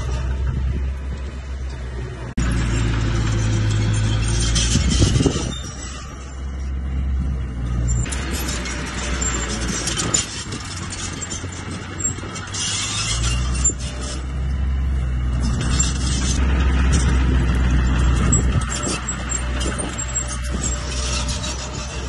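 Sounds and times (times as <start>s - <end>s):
bulldozer diesel engine: 0.0s - 22.0s.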